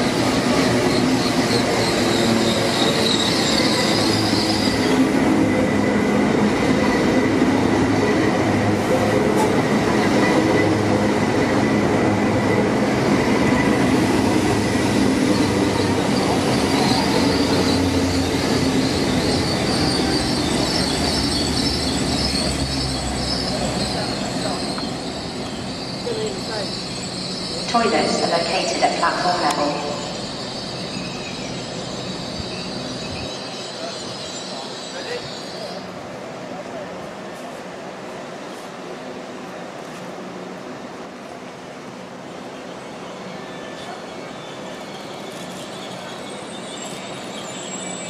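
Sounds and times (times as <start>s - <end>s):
train rumble and hum: 0.0s - 48.0s
high-pitched wheel squeal: 0.9s - 5.0s, 15.3s - 27.6s, 29.8s - 35.9s, 43.0s - 48.0s.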